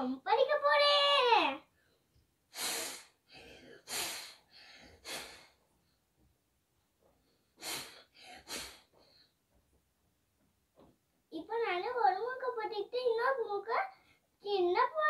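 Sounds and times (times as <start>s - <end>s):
child blowing nose: 2.5s - 3.2s, 3.8s - 5.5s, 7.6s - 8.9s.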